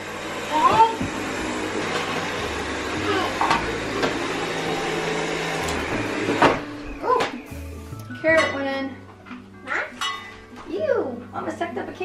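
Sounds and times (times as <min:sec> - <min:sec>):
stick vacuum running on carpet: 0:00.0 - 0:06.9.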